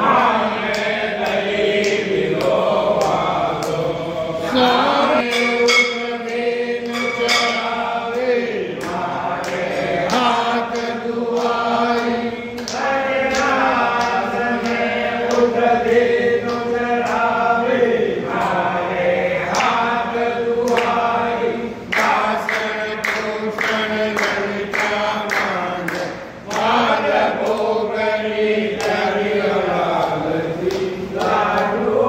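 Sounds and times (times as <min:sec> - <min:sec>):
sharp rhythmic strikes: 0:00.0 - 0:18.7
group of voices chanting: 0:00.0 - 0:32.0.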